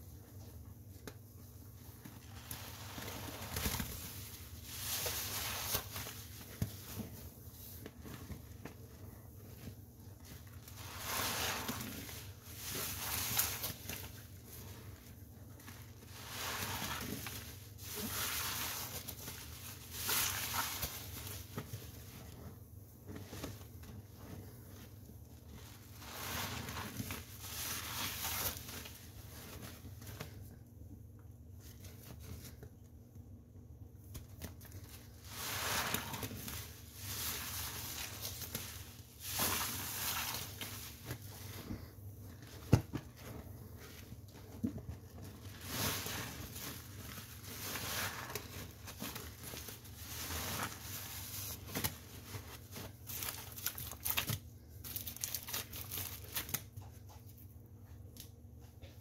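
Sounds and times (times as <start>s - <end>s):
soapy sponge squelching: 1.8s - 30.2s, 34.8s - 53.2s.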